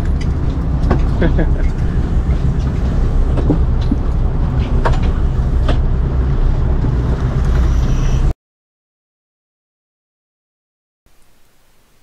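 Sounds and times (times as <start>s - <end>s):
boat engine rumbling: 0.0s - 8.3s.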